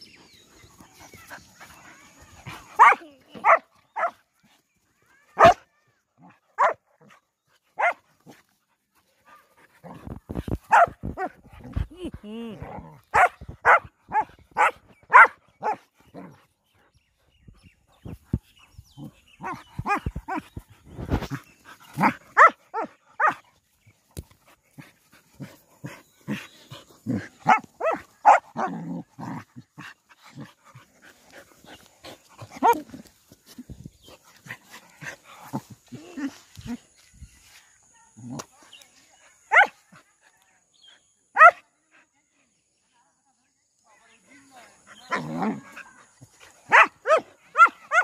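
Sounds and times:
dogs barking while play-fighting: 0:02.2 - 0:04.2, 0:06.6 - 0:06.9, 0:07.8 - 0:08.3, 0:09.8 - 0:11.9, 0:12.8 - 0:16.2, 0:19.0 - 0:23.4, 0:27.0 - 0:29.4, 0:45.1 - 0:48.0.

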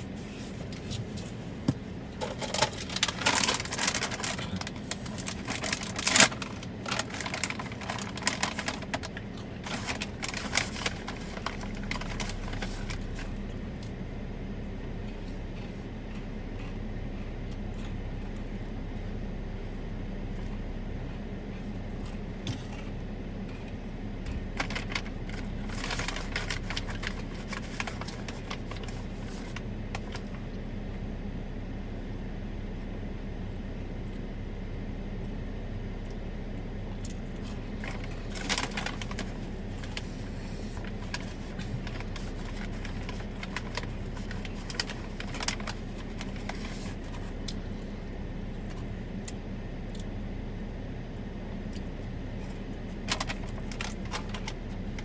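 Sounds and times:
car interior hum and rumble: 0:00.0 - 0:55.0.

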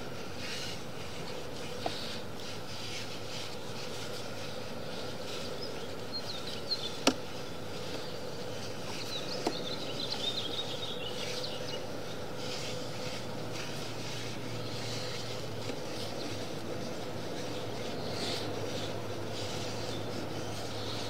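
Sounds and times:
steady hum: 0:00.0 - 0:21.0
cable rubbing and scraping: 0:12.3 - 0:21.0.

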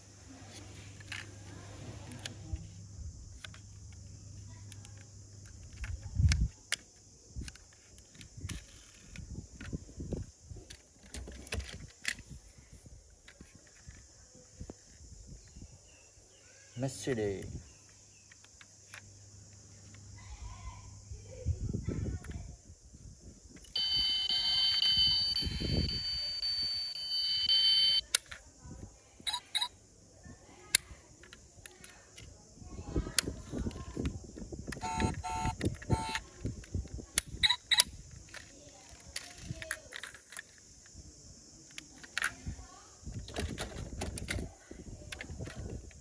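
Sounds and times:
metal toy cars clicking: 0:04.7 - 0:09.8, 0:37.2 - 0:40.6
toy car doors clicking: 0:04.7 - 0:09.8, 0:10.7 - 0:12.2, 0:23.6 - 0:28.4, 0:34.7 - 0:40.6, 0:41.7 - 0:42.4, 0:43.2 - 0:44.5
high electronic alarm tone: 0:23.8 - 0:28.0.

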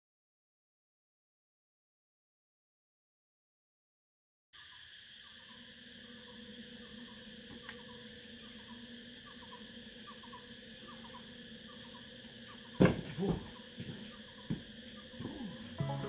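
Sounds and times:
insect chirp: 0:04.6 - 0:16.0
insect chorus buzzing drone: 0:04.6 - 0:16.0
climber landing with a thud: 0:12.8 - 0:13.5.

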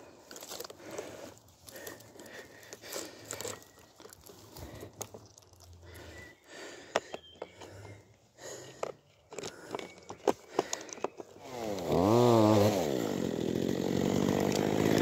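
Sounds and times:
dry undergrowth rustling: 0:00.0 - 0:12.4
twigs snapping: 0:00.2 - 0:07.9, 0:08.7 - 0:12.0.

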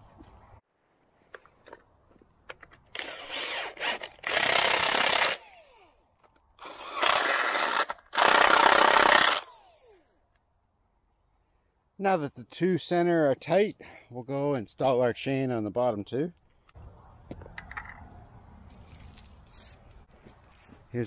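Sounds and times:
impact wrench motor spinning: 0:03.0 - 0:06.0, 0:06.6 - 0:10.1.

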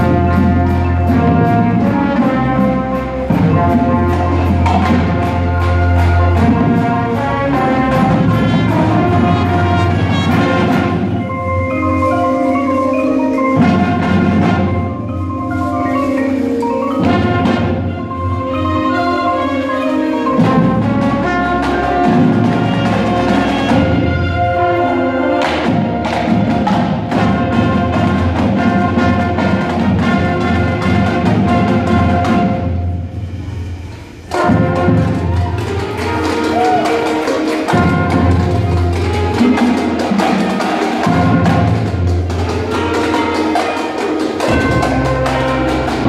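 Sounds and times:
drum hits: 0:00.0 - 0:11.4, 0:34.3 - 0:46.0
brass and saxophone chords: 0:00.0 - 0:46.0
marimbas and vibraphones: 0:00.0 - 0:46.0.

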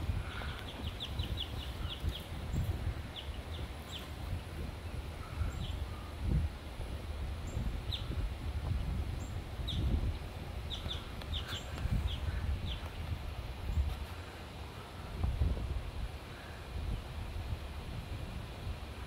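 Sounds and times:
birds chirping: 0:00.0 - 0:06.7, 0:07.3 - 0:15.3
wind rumble on microphone: 0:00.0 - 0:19.0.

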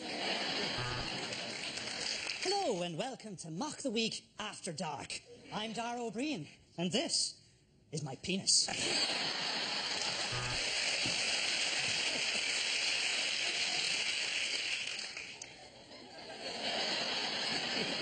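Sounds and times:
studio audience laughing: 0:00.0 - 0:02.3, 0:08.7 - 0:14.0, 0:15.5 - 0:18.0
audience applauding: 0:00.5 - 0:02.5, 0:09.8 - 0:15.4.

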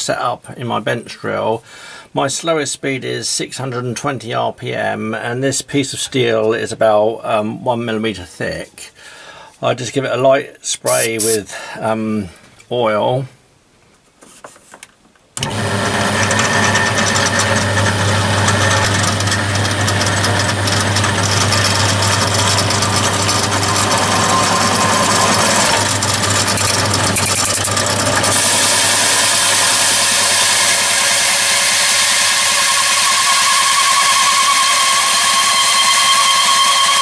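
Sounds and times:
drill motor hum: 0:10.9 - 0:11.4, 0:15.4 - 0:37.0
hole saw cutting metal: 0:10.9 - 0:11.5, 0:15.4 - 0:37.0.

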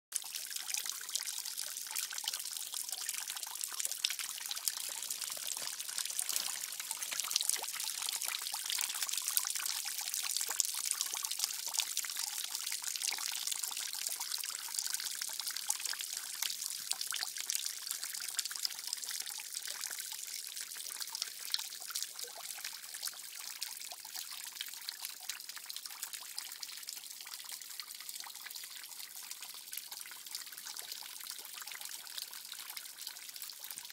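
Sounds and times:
water trickling: 0:00.1 - 0:33.9
water dripping splashes: 0:00.2 - 0:14.2.

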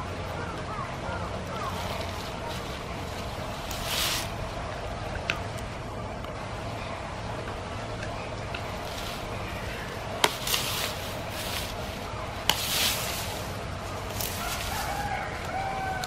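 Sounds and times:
bamboo snapping: 0:08.0 - 0:11.8, 0:12.4 - 0:16.0.

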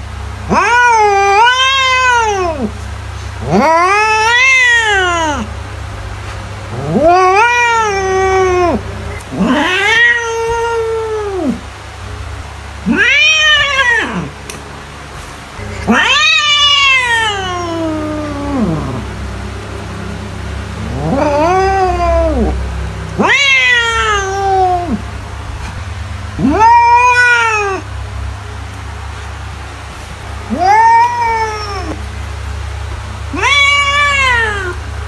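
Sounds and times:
cat meowing: 0:00.5 - 0:02.7, 0:03.4 - 0:05.5, 0:06.7 - 0:11.6, 0:12.8 - 0:14.4, 0:15.6 - 0:25.7, 0:26.4 - 0:27.9, 0:30.5 - 0:32.0, 0:33.3 - 0:34.8.

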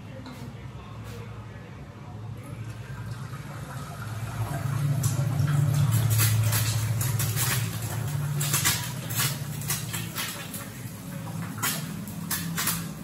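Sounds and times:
egg sizzling on griddle: 0:04.9 - 0:13.0.

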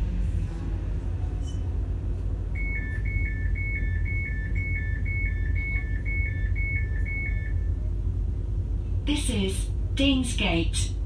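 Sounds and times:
low hum of train equipment: 0:00.0 - 0:11.0
two-tone door warning beeps: 0:02.5 - 0:07.8.

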